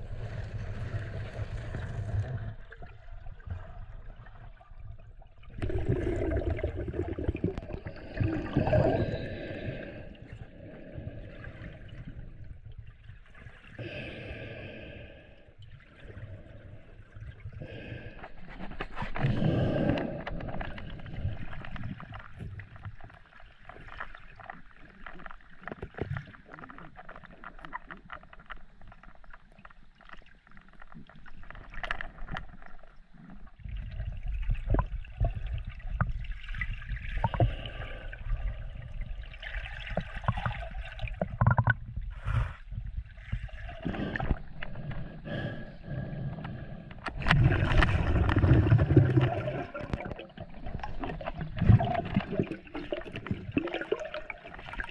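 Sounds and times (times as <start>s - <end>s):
low rumble of moving water: 0.0s - 54.9s
underwater gurgling and sloshing: 0.0s - 54.9s
small clicks and knocks: 41.2s - 41.8s.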